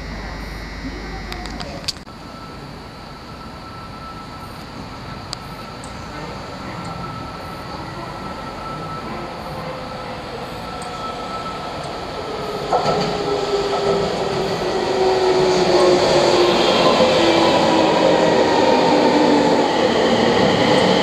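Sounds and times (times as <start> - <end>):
electric train whine and rumble: 0.0 - 21.0
train clunk: 11.8 - 14.7.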